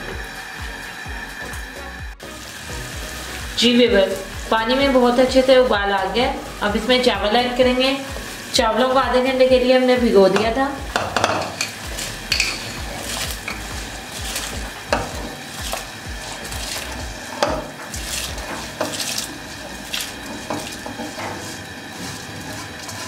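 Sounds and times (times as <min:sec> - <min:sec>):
water boiling: 0:00.0 - 0:23.0
utensil scraping a pot: 0:10.3 - 0:23.0.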